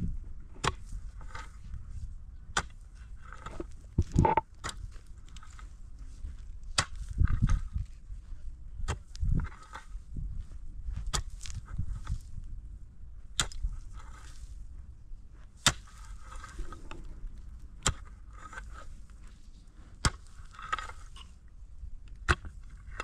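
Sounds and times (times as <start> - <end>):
scraping and rustling: 15.8 - 21.4.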